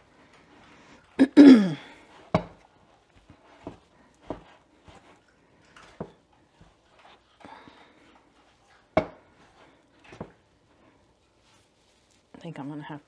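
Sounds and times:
wooden spoon stirring dough: 0.0 - 13.0
throat clearing: 1.2 - 1.8.

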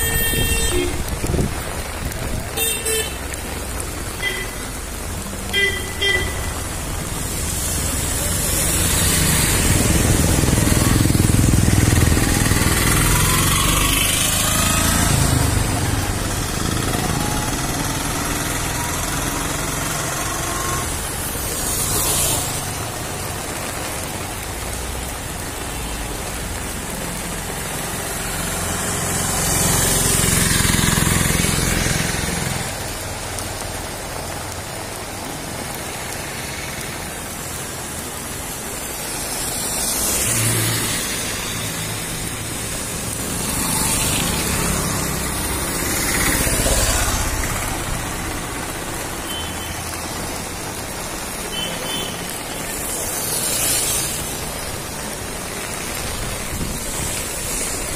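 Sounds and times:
heavy rain on street: 0.0 - 57.9
vehicles passing on wet road: 0.0 - 57.9.

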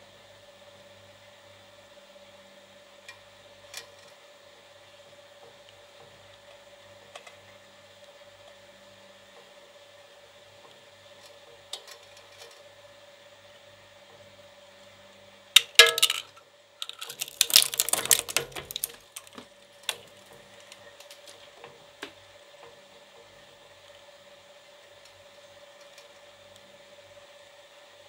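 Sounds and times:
metal toy car clanging on blades: 15.6 - 19.0
toy car crunching in shredder: 15.6 - 21.4.

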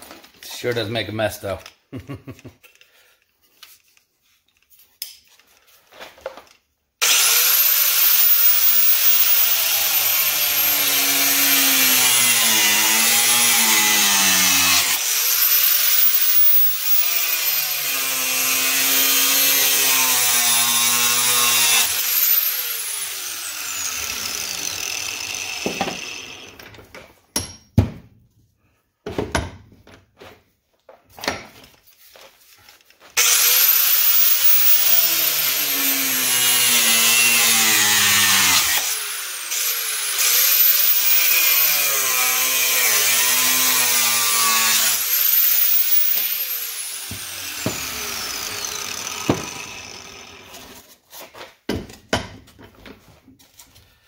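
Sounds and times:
grinder winding down: 7.0 - 26.6, 33.2 - 50.8
angle grinder cutting plastic pipe: 7.0 - 26.8, 33.1 - 50.9.

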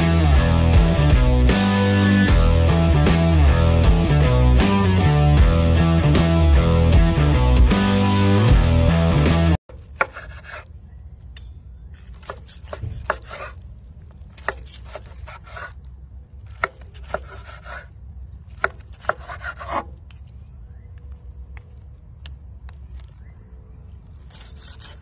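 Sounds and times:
knife sawing through ribs: 10.0 - 10.7, 12.2 - 13.6, 14.4 - 15.8, 16.5 - 18.0, 18.6 - 19.9, 24.3 - 25.0.

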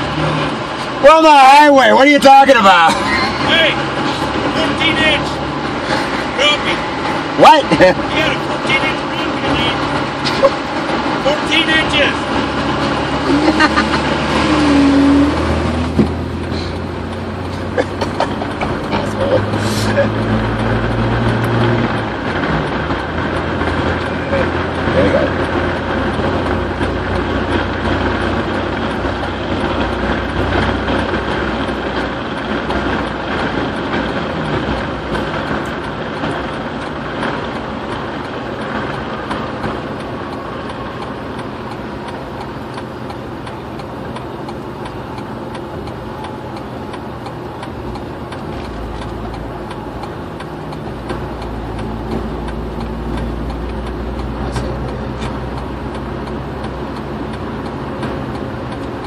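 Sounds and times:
car road and engine noise: 0.0 - 59.0.

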